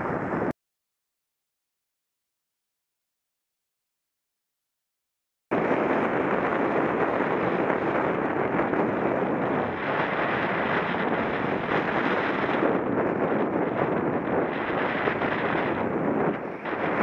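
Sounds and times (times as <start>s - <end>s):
wind roaring on microphone: 0.0s - 0.5s, 5.5s - 17.0s.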